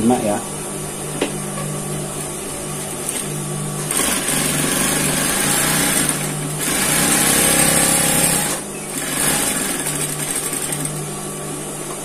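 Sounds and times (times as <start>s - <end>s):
sewing machine motor hum: 2.2s - 11.2s.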